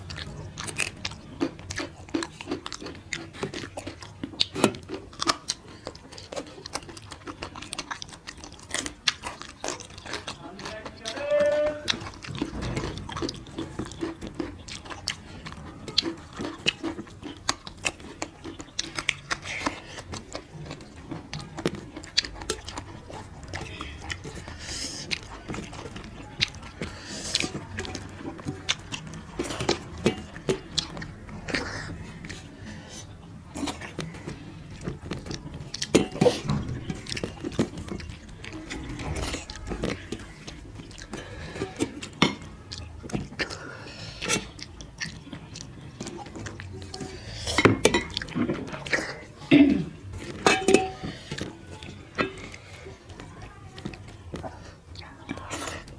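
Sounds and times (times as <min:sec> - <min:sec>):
raw carrot crunch: 0:00.0 - 0:55.9
wet chewing and lip-smacking: 0:00.0 - 0:55.9
fingers working rice on steel plates: 0:49.9 - 0:53.1.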